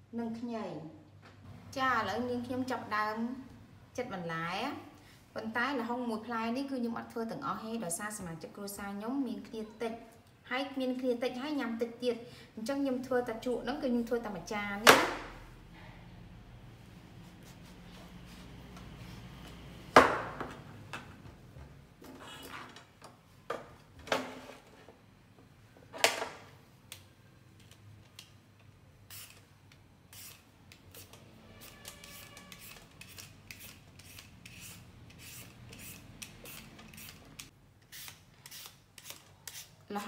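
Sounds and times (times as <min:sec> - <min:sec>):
peeler scraping strokes: 0:30.1 - 0:39.8.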